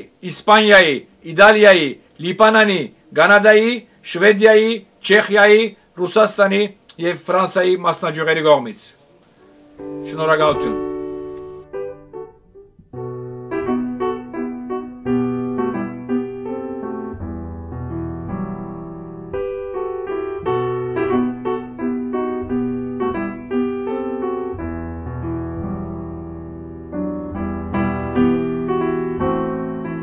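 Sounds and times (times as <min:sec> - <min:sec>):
electric piano melody: 0:09.4 - 0:30.0.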